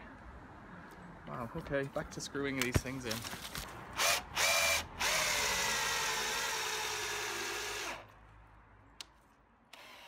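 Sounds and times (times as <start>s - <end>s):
power drill driving screw into wood: 4.0s - 8.1s, 9.7s - 10.0s.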